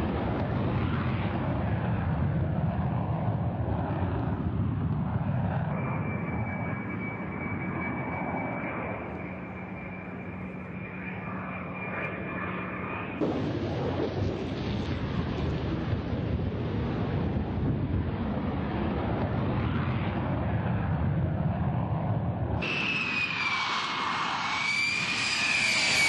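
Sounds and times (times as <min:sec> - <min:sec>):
jet engine rushing: 0:00.0 - 0:26.0
high-pitched whine: 0:05.3 - 0:13.6, 0:22.6 - 0:26.0.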